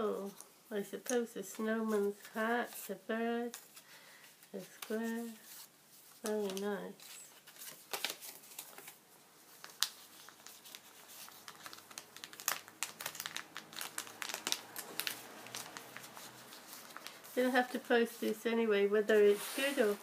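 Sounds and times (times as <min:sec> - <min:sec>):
paper crinkling and rustling: 0:04.6 - 0:18.4, 0:19.0 - 0:20.0
sharp paper crackles: 0:04.8 - 0:18.4.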